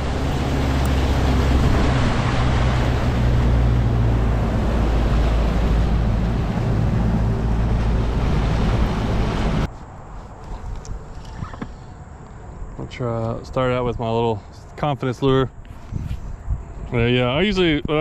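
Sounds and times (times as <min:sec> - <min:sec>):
outboard motor drone: 0:00.0 - 0:09.7
rushing water: 0:00.0 - 0:09.7
wind on microphone: 0:15.5 - 0:18.0.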